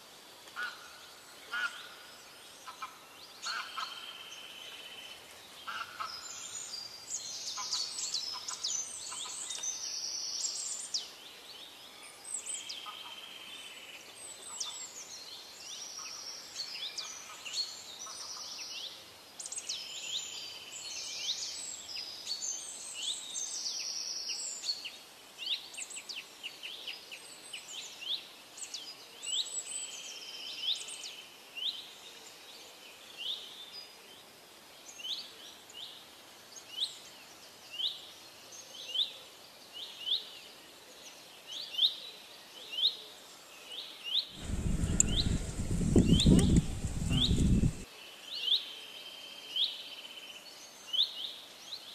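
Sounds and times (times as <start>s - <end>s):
faint outdoor background noise: 0.0s - 51.9s
birds chirping and trilling: 44.4s - 47.9s.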